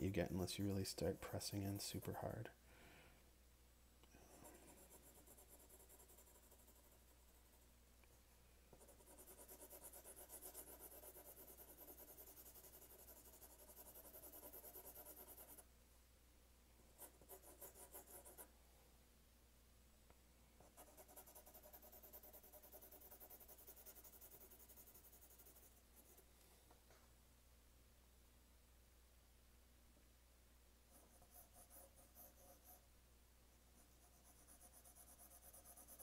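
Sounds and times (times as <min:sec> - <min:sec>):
pencil scratching on paper: 0:00.2 - 0:02.3, 0:04.2 - 0:07.6, 0:08.7 - 0:15.7, 0:17.0 - 0:18.5, 0:20.6 - 0:26.3, 0:30.9 - 0:32.8, 0:33.7 - 0:36.0.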